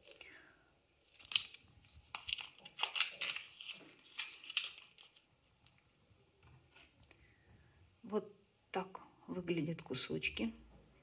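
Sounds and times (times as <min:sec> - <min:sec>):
foil pouch crinkling: 0:01.0 - 0:05.8.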